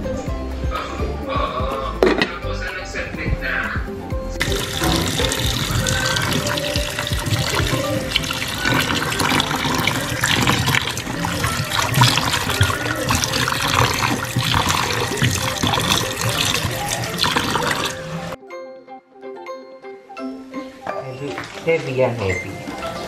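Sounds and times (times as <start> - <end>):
hand swishing potatoes in water: 4.4 - 18.4
tap water running into metal bowl: 4.4 - 18.4, 21.3 - 23.0.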